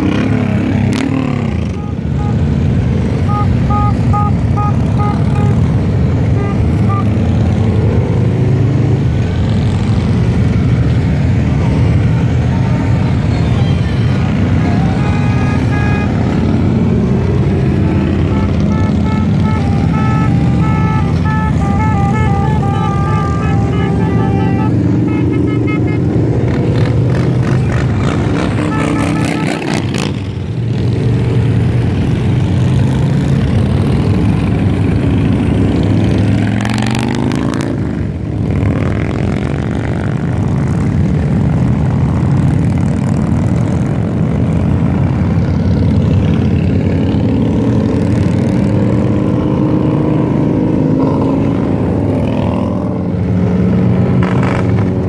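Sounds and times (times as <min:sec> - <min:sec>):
motorcycles riding past: 0:00.0 - 0:55.0.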